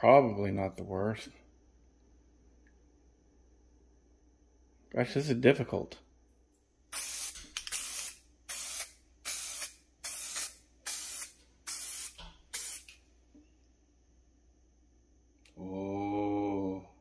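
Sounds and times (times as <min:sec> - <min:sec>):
aerosol can spraying: 0:06.9 - 0:13.0.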